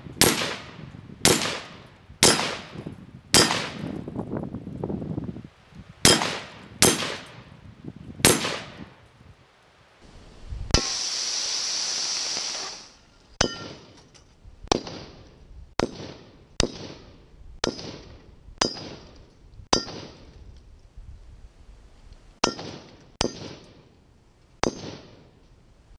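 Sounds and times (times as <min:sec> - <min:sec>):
rifle shots hitting metal: 0:00.2 - 0:04.0, 0:06.0 - 0:07.4, 0:08.2 - 0:08.9, 0:13.4 - 0:14.1
loud hissing rush: 0:10.0 - 0:13.1.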